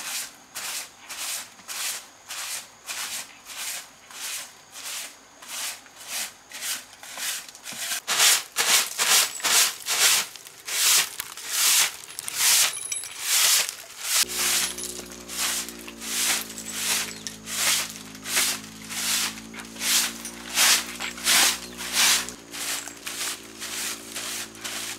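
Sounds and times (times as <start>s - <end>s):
hand tool rasping a surface: 6.6s - 24.9s.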